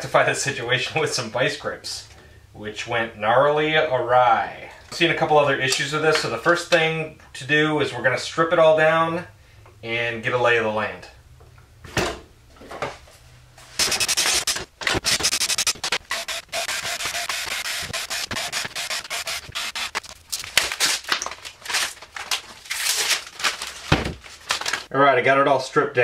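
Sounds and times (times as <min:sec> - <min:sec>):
drum hardware rustling and clicking: 0:13.7 - 0:22.8
plastic wrap peeling: 0:17.8 - 0:24.9.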